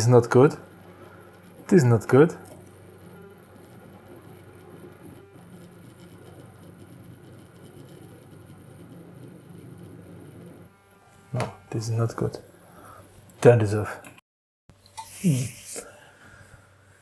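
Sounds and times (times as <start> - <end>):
stepper motor humming and ticking: 0.0 - 13.4.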